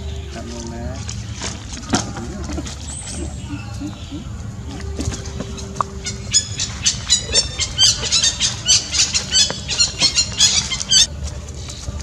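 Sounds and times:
high-pitched animal squeals: 5.6s - 11.1s.

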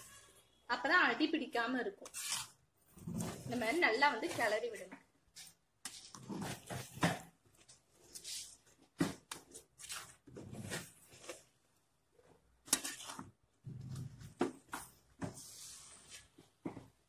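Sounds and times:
rice squishing: 12.6s - 13.4s.

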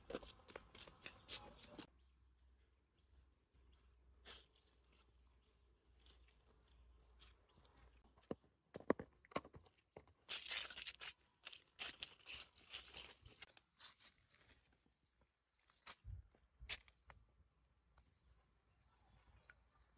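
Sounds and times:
sandal footsteps on dirt path: 0.0s - 1.9s, 3.6s - 17.1s.

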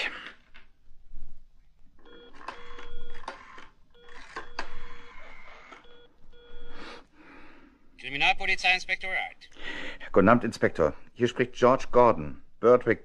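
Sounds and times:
telephone ringing tone: 2.0s - 6.8s.

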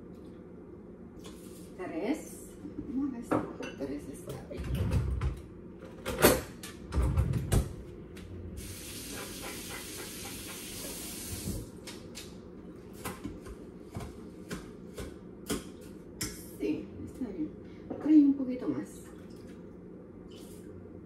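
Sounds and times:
water running: 8.6s - 11.7s.

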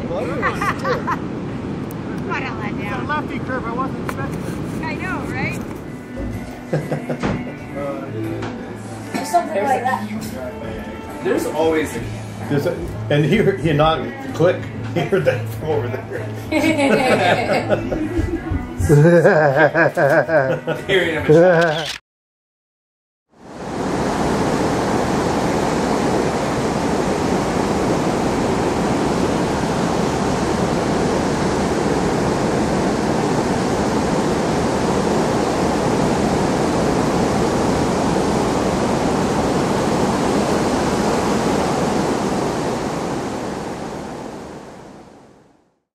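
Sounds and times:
waves breaking on beach: 0.0s - 7.6s, 23.4s - 45.5s.

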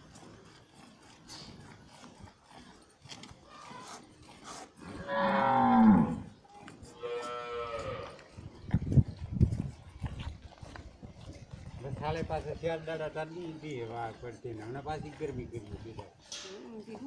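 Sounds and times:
cow mooing: 4.9s - 6.3s, 7.0s - 8.2s.

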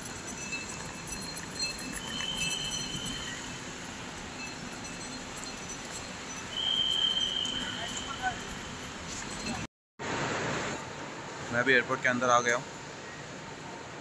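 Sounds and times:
suitcase wheels rattling on paving: 0.0s - 9.7s
traffic hum: 0.0s - 14.0s.

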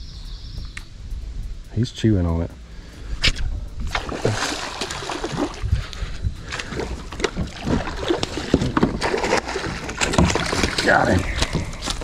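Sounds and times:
fish thrashing and splashing water: 3.9s - 5.7s, 6.5s - 12.0s.

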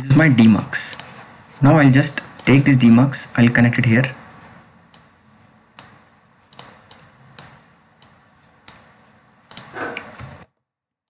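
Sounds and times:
faint room hum: 0.0s - 10.6s
computer mouse clicking: 4.9s - 5.1s, 5.8s - 8.9s, 9.5s - 10.1s.

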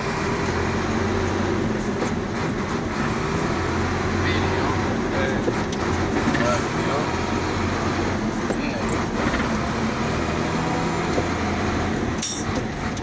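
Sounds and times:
truck diesel engine running: 0.0s - 13.0s.

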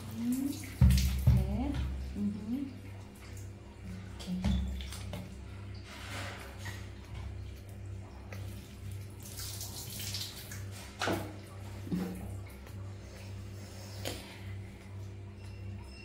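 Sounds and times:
water splashing in plastic bucket: 0.0s - 2.2s, 4.1s - 7.5s.

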